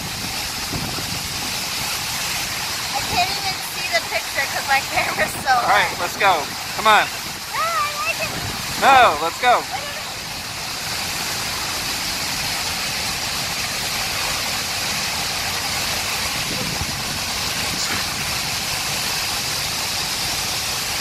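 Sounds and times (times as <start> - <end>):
wind buffeting microphone: 0.0 - 10.0, 16.0 - 18.9
waterfall rushing: 0.0 - 21.0.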